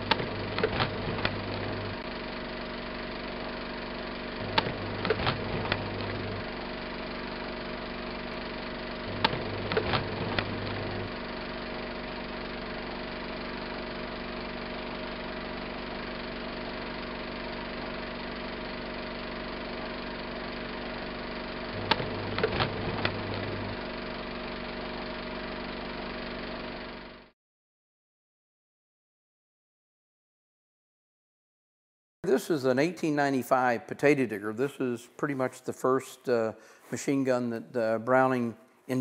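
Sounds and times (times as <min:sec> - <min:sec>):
projector clicks: 0:00.0 - 0:02.0, 0:04.4 - 0:06.5, 0:09.0 - 0:11.2, 0:21.8 - 0:23.8
film projector whirring: 0:00.0 - 0:27.3.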